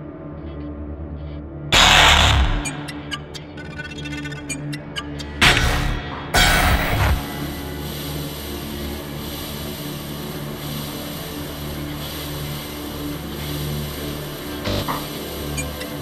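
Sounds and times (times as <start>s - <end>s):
low droning hum: 1.7s - 3.6s, 4.8s - 16.0s.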